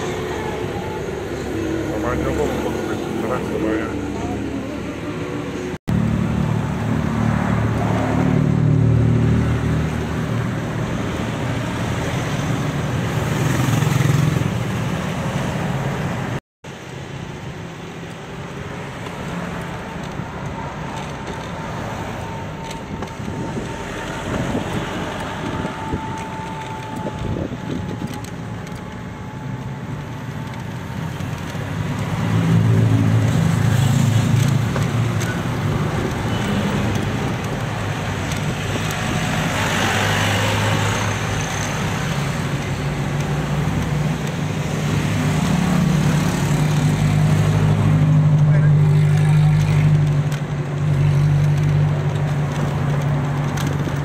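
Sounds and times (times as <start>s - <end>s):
road traffic rumble: 0.0s - 54.0s.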